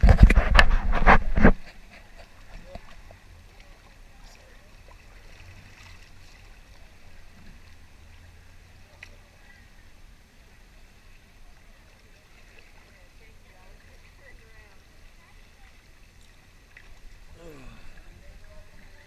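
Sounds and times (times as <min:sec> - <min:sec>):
water drips and splashes: 0:02.0 - 0:09.5, 0:11.2 - 0:14.3, 0:15.0 - 0:19.0.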